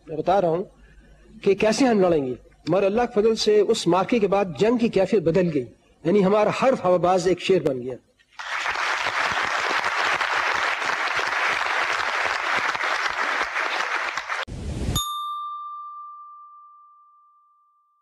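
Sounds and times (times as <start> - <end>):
audience applauding: 8.4 - 14.5
bright ding: 15.0 - 18.0.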